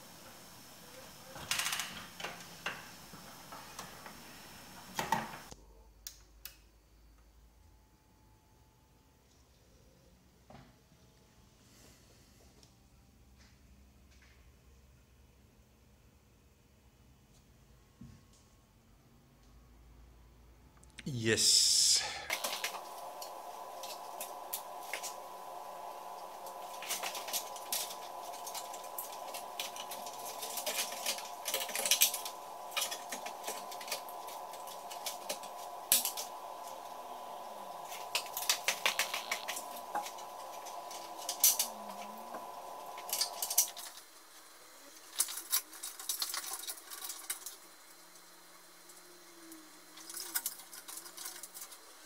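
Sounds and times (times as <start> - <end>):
steady hum: 21.0 - 44.2.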